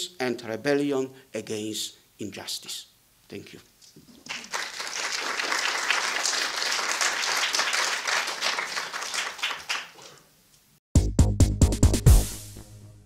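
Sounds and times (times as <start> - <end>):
audience applauding: 4.2 - 10.2
electronic music with heavy bass: 11.0 - 13.0.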